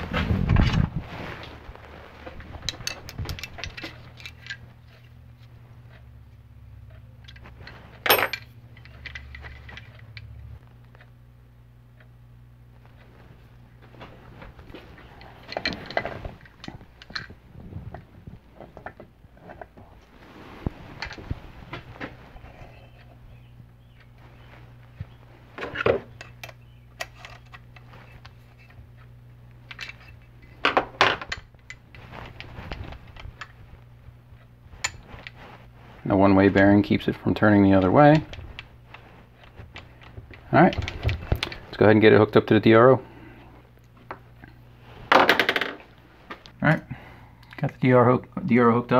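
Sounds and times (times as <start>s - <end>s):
steady low hum: 0.0s - 48.9s
metal parts clicking and clinking: 2.6s - 5.1s, 6.9s - 10.3s, 15.2s - 17.3s, 29.7s - 31.9s
steel tools clinking: 6.9s - 10.3s.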